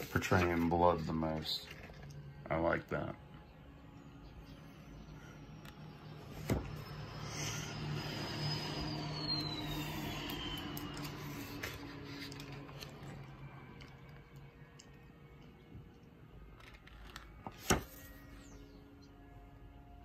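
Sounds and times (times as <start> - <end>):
faint whine falling in pitch: 1.2 - 20.0
passing motor vehicle hum: 4.2 - 15.4.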